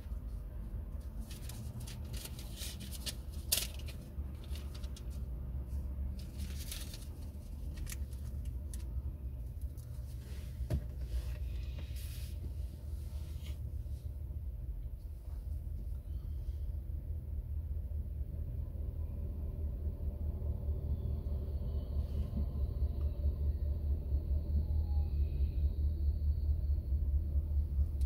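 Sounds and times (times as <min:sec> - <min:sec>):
car idling cabin rumble: 0:00.0 - 0:28.0.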